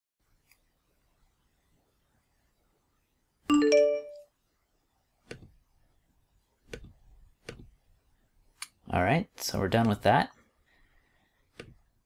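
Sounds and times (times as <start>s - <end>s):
computer system chime: 3.5s - 4.2s.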